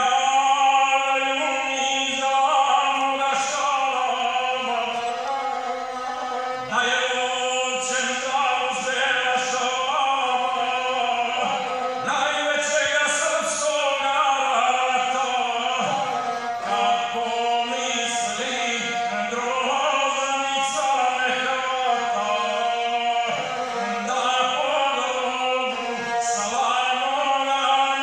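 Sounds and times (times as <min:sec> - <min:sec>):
bowed string rasping tone: 0:01.5 - 0:27.4
man chanting verse: 0:06.6 - 0:28.0.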